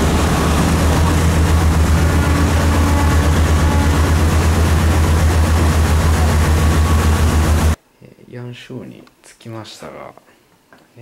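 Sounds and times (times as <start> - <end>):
boat engine throbbing: 0.0 - 7.8.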